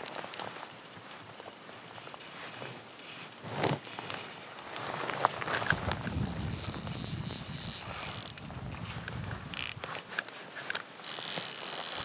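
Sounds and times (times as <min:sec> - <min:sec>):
fly reel drag buzzing: 0:06.1 - 0:08.8, 0:09.5 - 0:10.0, 0:11.0 - 0:12.0.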